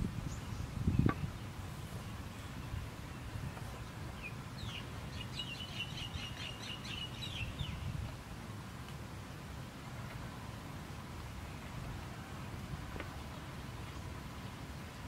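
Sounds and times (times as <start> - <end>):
songbird chirping: 0.1 - 8.0.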